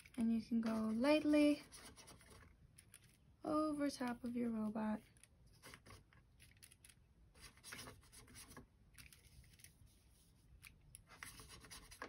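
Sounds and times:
paintbrush scratching on foil: 0.0 - 2.5.

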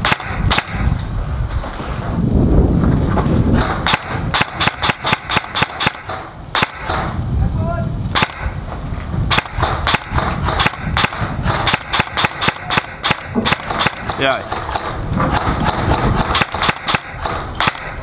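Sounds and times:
airsoft guns firing: 0.0 - 1.0, 3.5 - 7.2, 8.1 - 8.6, 9.3 - 18.0.

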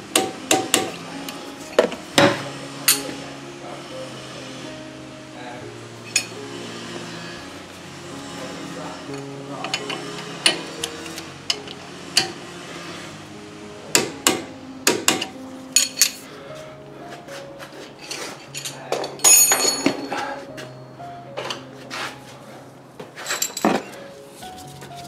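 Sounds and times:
plucked guitar music: 0.0 - 18.9
metal hand tools clinking: 9.1 - 12.4, 15.1 - 16.2, 18.0 - 20.3, 23.2 - 24.0.

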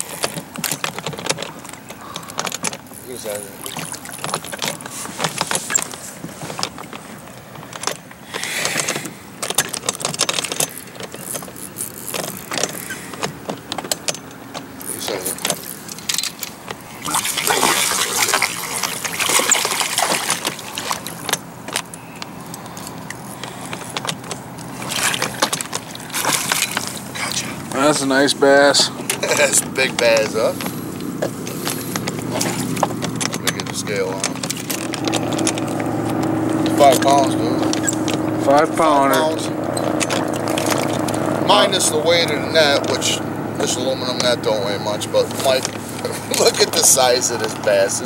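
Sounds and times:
water splashing against boat: 0.0 - 48.0
fishing reel cranking and clicking: 9.6 - 13.2, 14.8 - 16.3.

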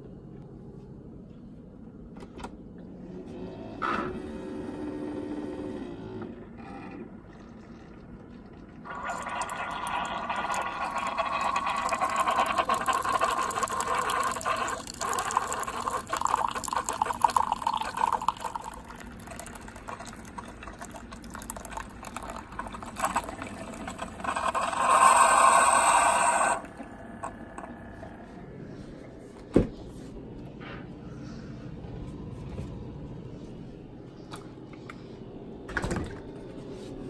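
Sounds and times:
coffee pouring into a mug: 7.2 - 28.1.

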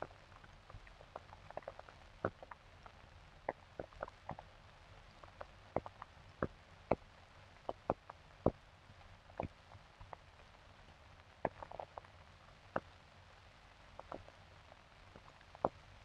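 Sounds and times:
film soundtrack clicks and pops: 0.4 - 4.5, 5.1 - 8.6, 9.3 - 12.1.

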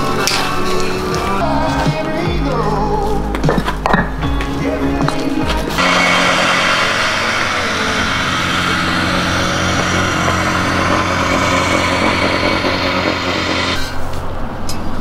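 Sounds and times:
strong hiss: 5.8 - 14.1
engine running steadily: 5.8 - 14.2.

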